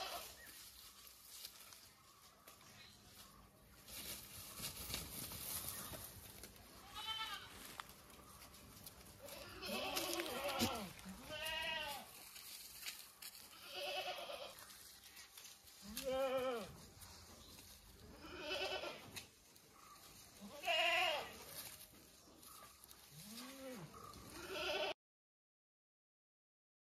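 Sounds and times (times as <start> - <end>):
goats bleating: 0.0 - 0.4, 6.7 - 7.8, 9.2 - 12.2, 13.5 - 14.6, 15.8 - 16.8, 18.1 - 19.2, 20.4 - 21.4, 23.2 - 25.0.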